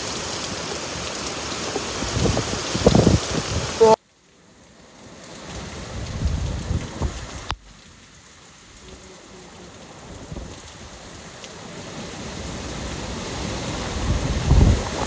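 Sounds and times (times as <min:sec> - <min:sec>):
heavy rain: 0:00.0 - 0:15.0
wind: 0:00.0 - 0:15.0
wind gust on microphone: 0:01.7 - 0:04.0, 0:05.6 - 0:07.5, 0:12.3 - 0:15.0.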